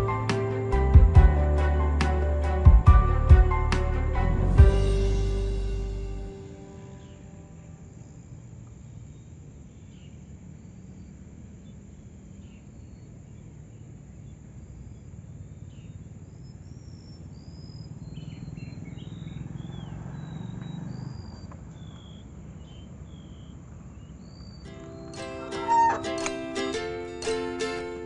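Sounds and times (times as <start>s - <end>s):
birds chirping: 4.7s - 27.1s.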